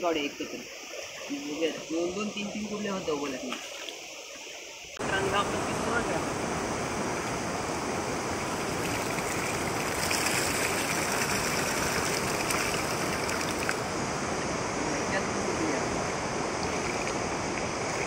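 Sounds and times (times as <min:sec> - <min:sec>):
stream rushing: 0:00.0 - 0:18.0
water pouring from a pipe: 0:08.4 - 0:13.8.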